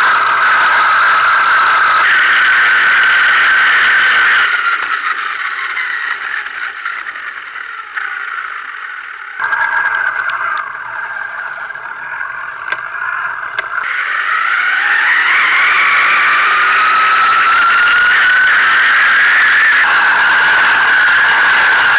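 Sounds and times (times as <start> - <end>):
gravel rattling under tyres: 0.0 - 21.9
rc car motor whining: 0.0 - 21.9
stones ticking against chassis: 9.4 - 11.6, 12.6 - 13.9.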